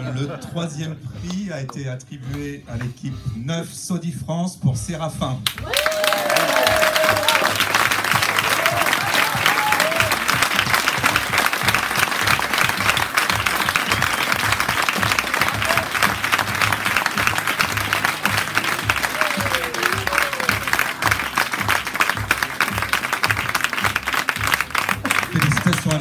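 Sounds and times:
background music: 0.0s - 26.0s
audience applauding: 5.5s - 26.0s.

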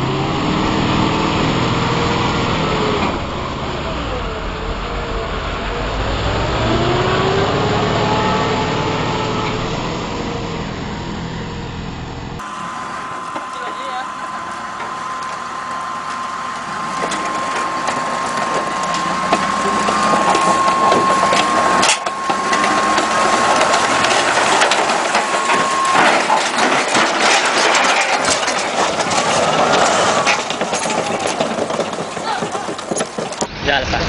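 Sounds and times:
steel tracks clanking and grinding: 0.0s - 34.0s
steady high whine: 3.0s - 30.6s.

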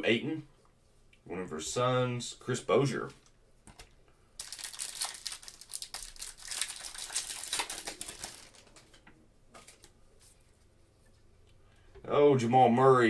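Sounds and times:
foil wrapper crinkling: 4.4s - 9.0s.

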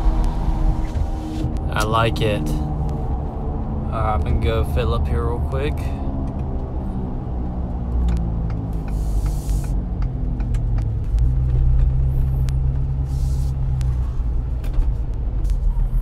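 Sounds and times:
diesel truck engine: 0.0s - 16.0s
high airy hisses: 8.9s - 9.7s.

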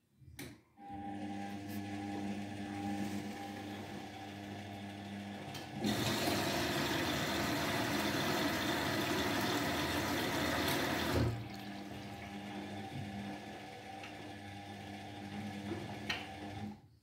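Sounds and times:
washing machine motor hum: 0.8s - 16.8s
water pouring into drum: 5.8s - 12.4s.

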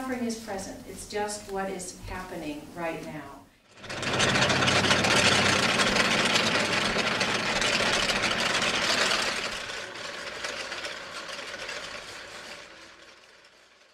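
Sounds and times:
prayer wheels rattling: 3.7s - 13.9s.

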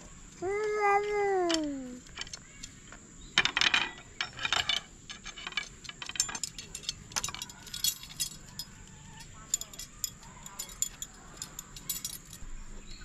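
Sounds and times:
chain and hook jangling: 3.5s - 12.5s.

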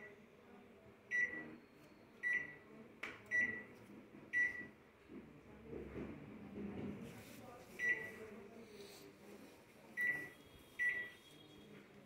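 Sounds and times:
microwave keypad beeps: 1.1s - 2.7s, 3.3s - 3.7s, 4.4s - 4.7s, 7.8s - 8.2s, 10.0s - 11.5s.

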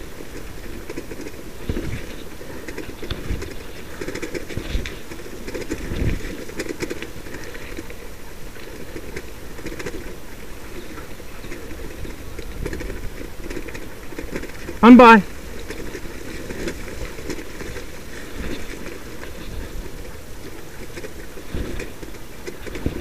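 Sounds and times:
sled rig rattling over dirt trail: 0.0s - 23.0s
small clatters: 0.0s - 23.0s.

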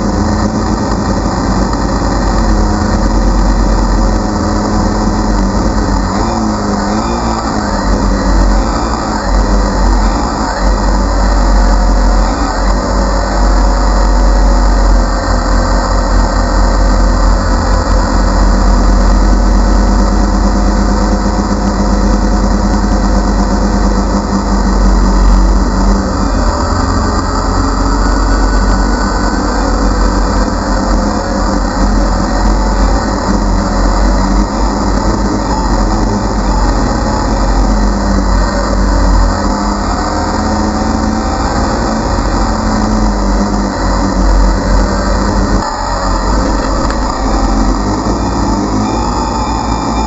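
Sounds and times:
drone propellers whirring: 0.0s - 50.0s.

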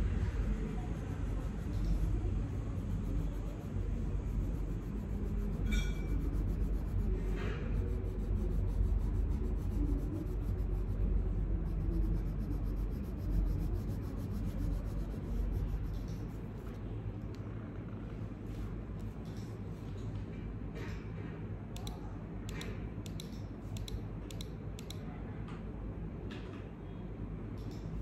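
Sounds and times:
low steady rumble: 0.0s - 20.8s
colored pencil scratching on paper: 0.3s - 16.8s.

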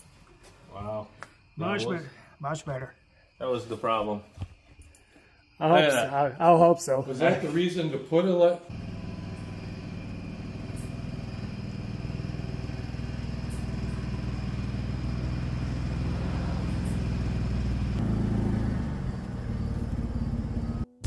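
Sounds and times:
car engine running: 8.7s - 21.0s.

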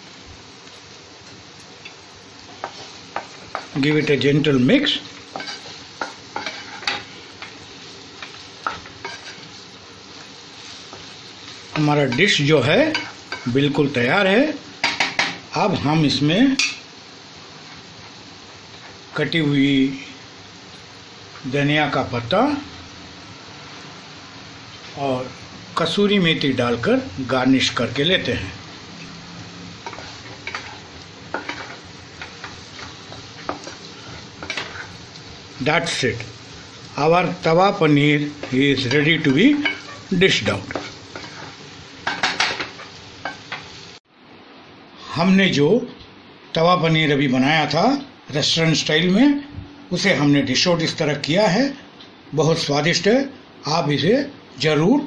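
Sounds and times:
food sizzling: 0.0s - 55.0s
spatula scraping a pan: 5.3s - 7.6s, 8.2s - 9.6s, 29.8s - 35.2s, 38.3s - 40.1s, 40.7s - 43.7s.

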